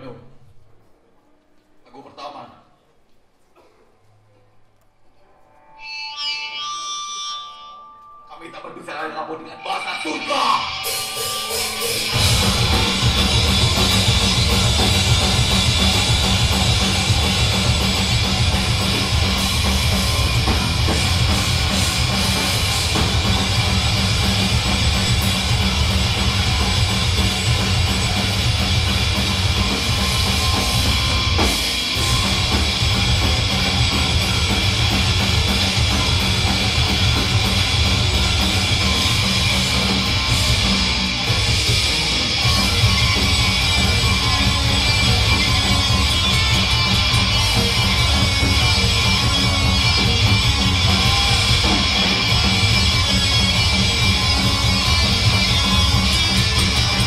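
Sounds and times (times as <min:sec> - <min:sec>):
punk band playing live: 0:09.8 - 0:57.0.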